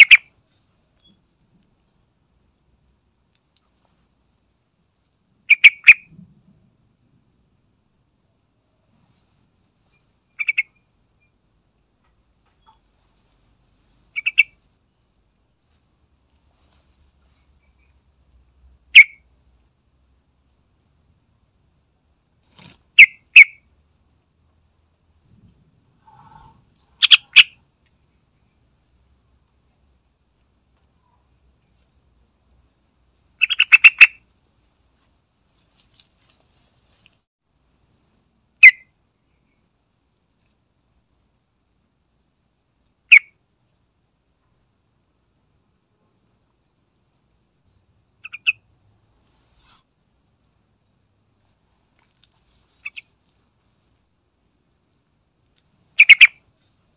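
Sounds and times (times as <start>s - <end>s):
bulbul chattering call: 0.0s - 0.3s, 10.3s - 10.8s, 14.1s - 14.6s, 26.0s - 27.6s, 33.4s - 34.2s, 48.2s - 48.6s, 52.8s - 53.1s, 55.9s - 56.5s
bird chirping: 0.0s - 1.4s, 5.5s - 6.1s, 9.0s - 19.3s, 25.3s - 29.9s, 33.3s - 34.2s, 47.6s - 48.7s, 52.5s - 54.0s, 55.7s - 56.9s.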